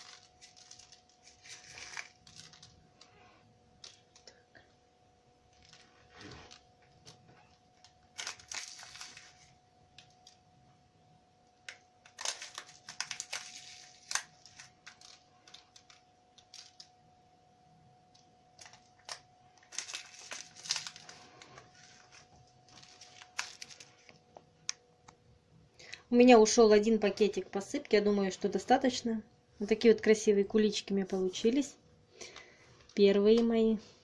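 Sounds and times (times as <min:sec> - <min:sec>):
plastic sachet crinkling: 0:00.0 - 0:04.6, 0:05.4 - 0:10.5, 0:11.6 - 0:17.0, 0:18.1 - 0:24.8.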